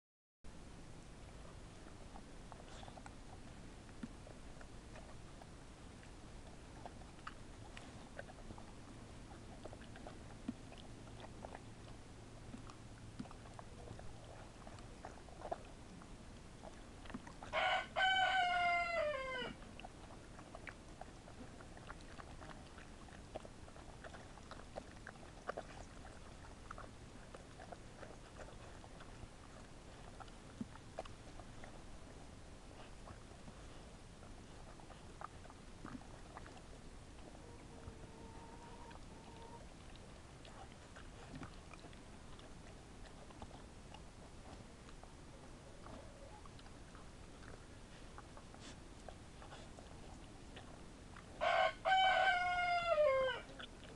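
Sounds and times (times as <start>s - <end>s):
dogs chewing and licking: 1.1s - 53.9s
rooster crowing: 17.5s - 19.6s, 51.4s - 53.5s.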